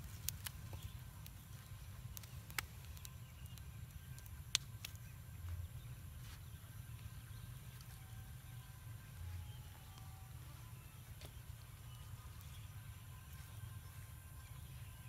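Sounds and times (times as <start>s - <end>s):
wood fire pops and crackles: 0.0s - 8.4s
low steady rumble: 0.0s - 15.0s.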